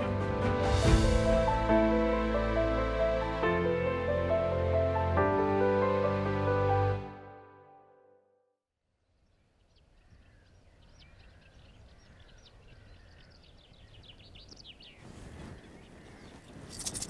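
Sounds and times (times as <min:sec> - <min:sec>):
songbird chirping: 0:08.9 - 0:17.0.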